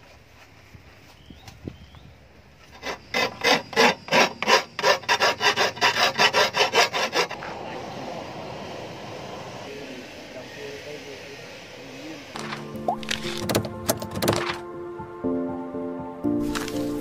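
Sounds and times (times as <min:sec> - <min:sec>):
steady background noise: 0:00.0 - 0:14.6
file scraping a steel blade: 0:02.6 - 0:07.4.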